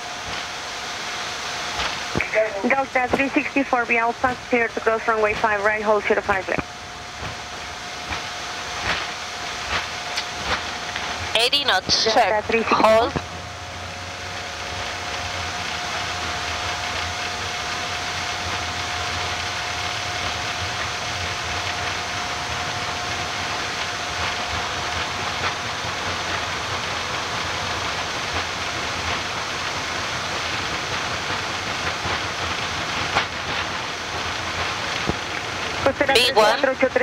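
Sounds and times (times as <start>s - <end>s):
jet engine and airflow rush: 0.0s - 36.7s
faint steady whine: 0.0s - 37.0s.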